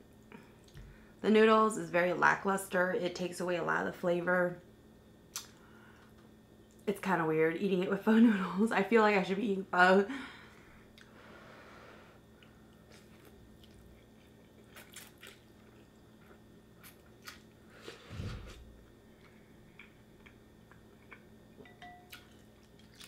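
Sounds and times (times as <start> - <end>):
faint chewing and mouth sounds: 12.3 - 23.0.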